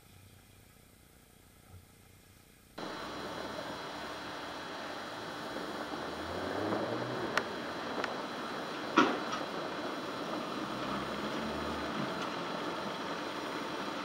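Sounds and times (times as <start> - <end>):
steady hiss: 0.0 - 14.0
pickup truck engine running: 2.8 - 14.0.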